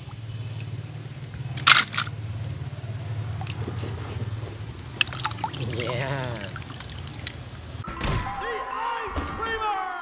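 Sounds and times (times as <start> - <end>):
toy truck clattering into basket: 1.6 - 2.1.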